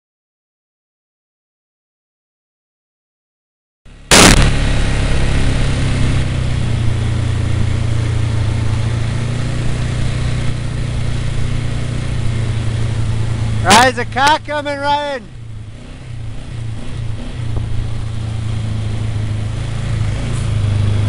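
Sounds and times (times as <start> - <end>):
vehicle engine humming: 3.9 - 21.0
sharp knock: 4.1 - 4.8
tyres rushing on gravel: 12.4 - 15.3.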